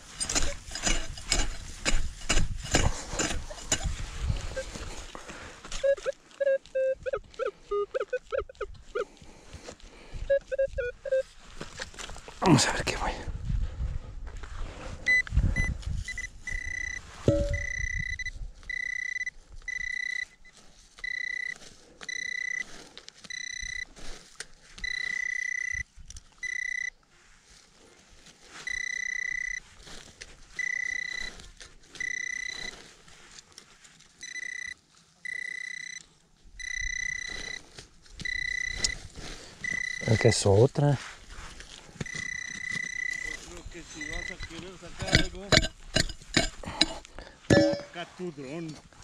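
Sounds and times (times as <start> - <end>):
metal detector beeping: 0.2 - 1.7, 2.3 - 5.0, 5.6 - 9.3, 10.1 - 11.3, 15.0 - 24.0, 24.8 - 27.0, 28.6 - 29.7, 30.5 - 32.8, 34.2 - 40.6, 42.0 - 48.0.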